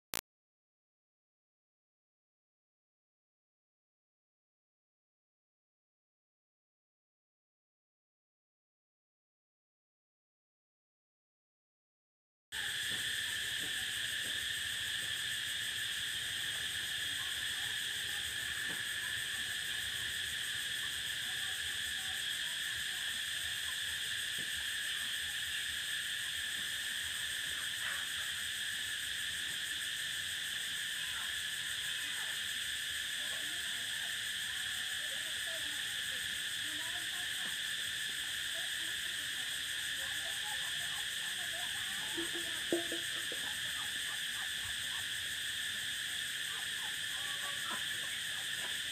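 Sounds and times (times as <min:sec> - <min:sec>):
cicadas buzzing: 0:12.6 - 0:48.9.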